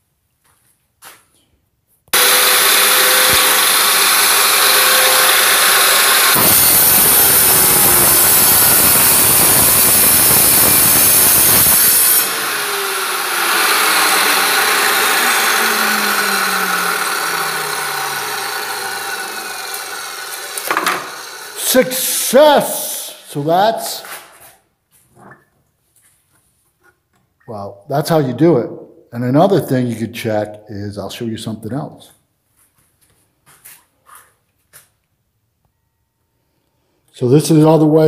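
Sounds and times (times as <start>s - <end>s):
saw blade grinding through tile: 2.2s - 22.2s
wet tile saw motor running: 2.2s - 22.2s.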